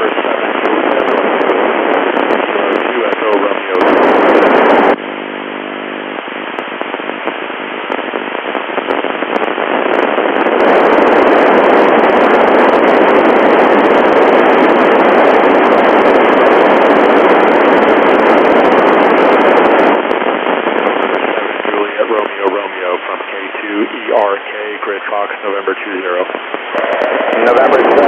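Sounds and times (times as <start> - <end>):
radio static hiss: 0.0 - 28.0
faint buzz: 4.7 - 9.8.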